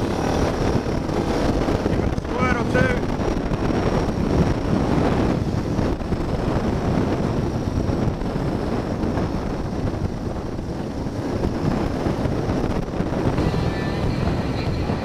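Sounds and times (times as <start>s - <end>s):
dirt bike engine running: 0.0s - 15.0s
wind buffeting microphone: 0.0s - 15.0s.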